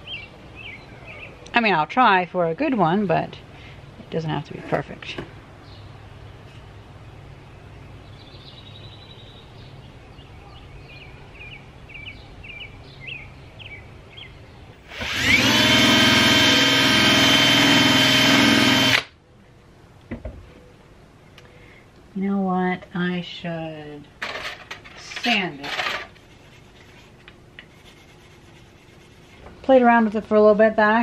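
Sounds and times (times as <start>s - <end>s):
drill with buffing wheel whining: 14.8s - 19.1s.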